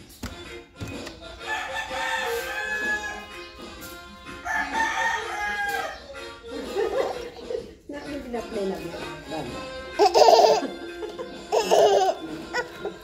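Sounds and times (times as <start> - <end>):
rooster crowing: 1.4 - 3.4, 4.4 - 6.0.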